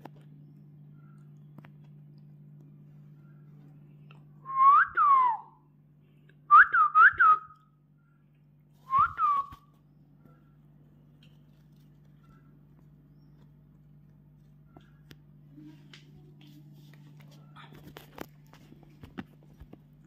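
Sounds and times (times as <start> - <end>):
whistling: 4.4 - 5.6, 6.5 - 7.6, 8.8 - 9.6.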